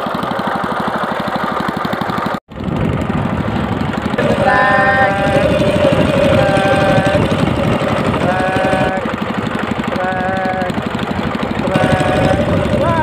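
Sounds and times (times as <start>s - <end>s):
outboard engine running: 0.0s - 13.0s
steady multi-pitch tone: 3.2s - 13.0s.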